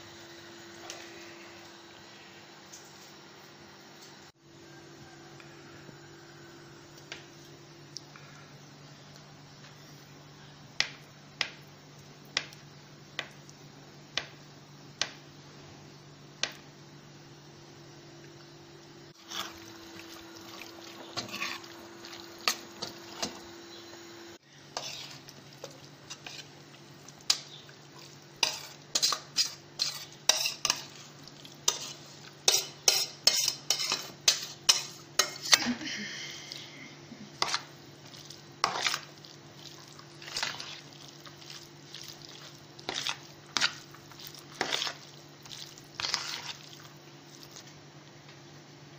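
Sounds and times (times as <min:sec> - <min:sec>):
spoon scraping plastic bowl: 0:42.4 - 0:46.8.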